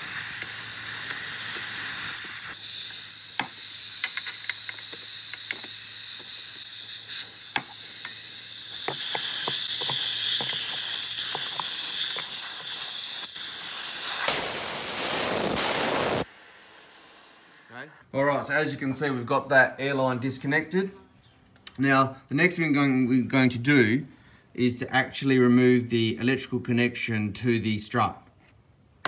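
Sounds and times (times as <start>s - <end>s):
compressed air hissing: 0.0s - 18.0s
spanner clicking on metal fitting: 2.5s - 12.9s.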